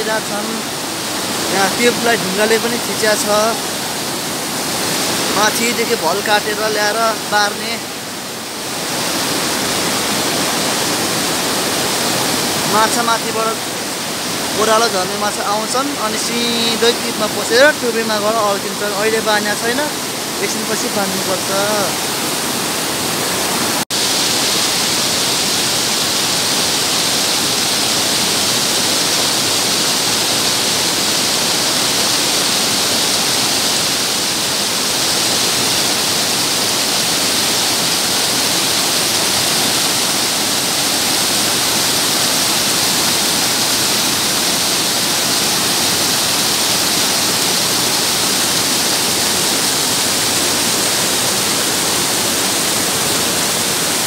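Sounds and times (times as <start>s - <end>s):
stream rushing over boulders: 0.0s - 54.0s.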